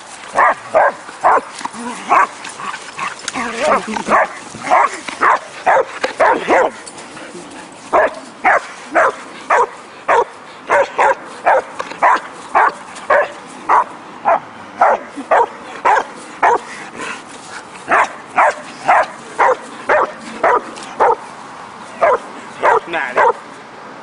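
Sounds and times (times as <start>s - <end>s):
dog barking: 0.4s - 1.5s, 4.1s - 6.8s, 7.9s - 16.6s, 17.9s - 21.2s, 22.0s - 23.4s.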